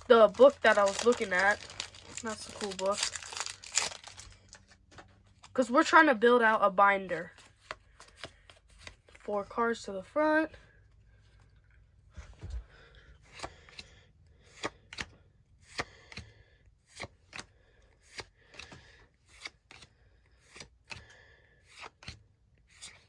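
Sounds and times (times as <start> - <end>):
cards sliding with papery snaps: 13.3 - 16.3, 16.9 - 23.0.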